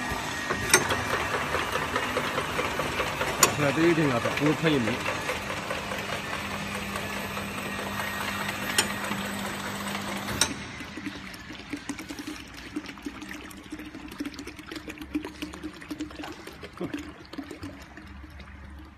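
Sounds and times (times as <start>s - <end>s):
bottles clicking on conveyor: 0.0s - 11.2s
machine hum: 0.0s - 12.4s.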